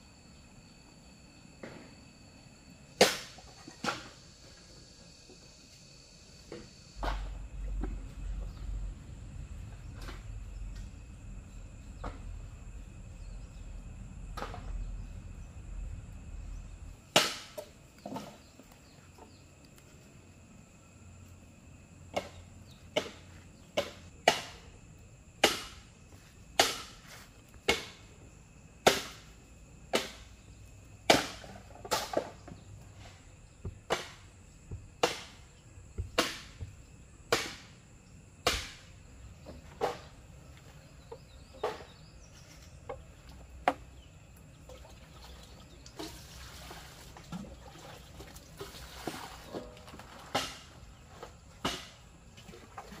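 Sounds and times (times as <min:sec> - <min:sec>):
high insect drone: 0:00.0 - 0:53.0
sharp knocks: 0:31.1 - 0:37.7, 0:38.4 - 0:38.8.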